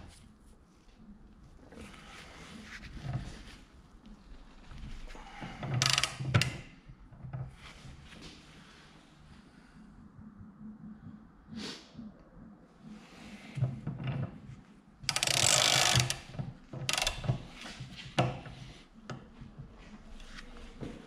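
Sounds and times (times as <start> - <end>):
ratchet wrench clicking: 15.1 - 16.2.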